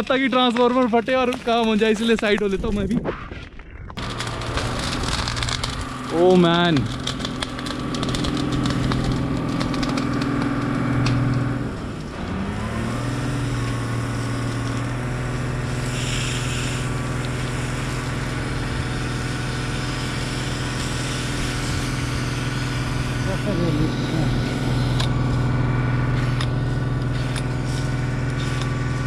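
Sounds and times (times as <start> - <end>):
fire engine motor running: 3.4 - 29.0
water jet hissing from nozzle: 14.0 - 25.0.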